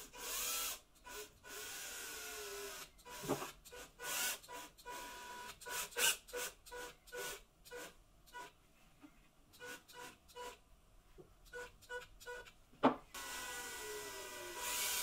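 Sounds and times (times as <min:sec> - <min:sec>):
drill motor whining: 0:13.2 - 0:15.0.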